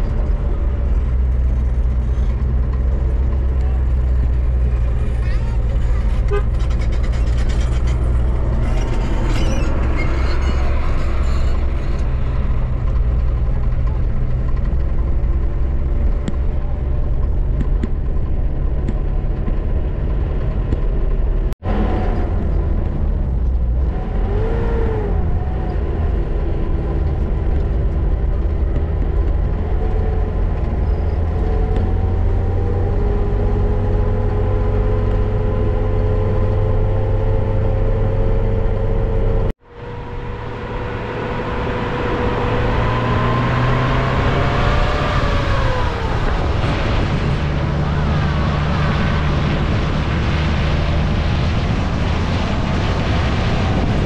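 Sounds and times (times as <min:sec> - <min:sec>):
engine and road rumble: 0:00.0 - 0:54.0
gliding whine tones: 0:37.3 - 0:51.4.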